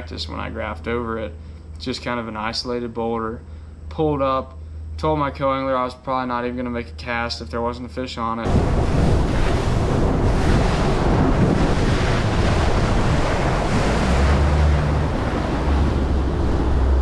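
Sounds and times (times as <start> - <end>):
low motor hum: 8.5 - 17.0
waves slapping against boat hull: 8.5 - 17.0
wind buffeting microphone: 8.5 - 17.0.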